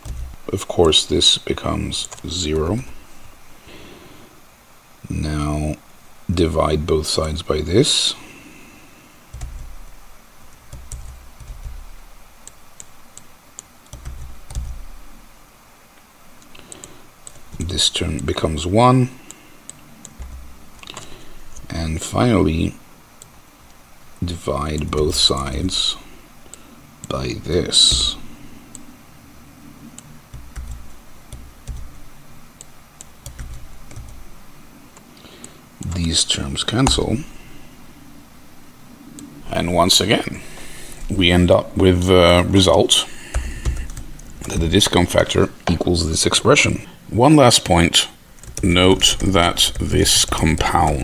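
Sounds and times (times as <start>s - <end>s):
keyboard keystrokes clicking: 0.0s - 0.5s, 10.6s - 15.0s, 30.0s - 32.0s, 32.6s - 34.2s
computer keyboard typing: 0.0s - 1.0s, 2.0s - 2.9s, 9.3s - 15.1s, 16.4s - 17.8s, 19.2s - 21.7s, 24.7s - 25.4s, 27.9s - 28.9s, 29.9s - 34.4s, 43.3s - 45.2s, 48.4s - 51.0s.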